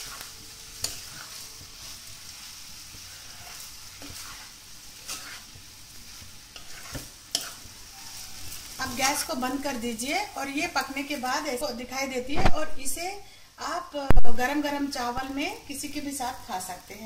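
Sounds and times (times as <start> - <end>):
spoon stirring food in pan: 0.0 - 11.2
soft steady sizzle: 0.0 - 17.0.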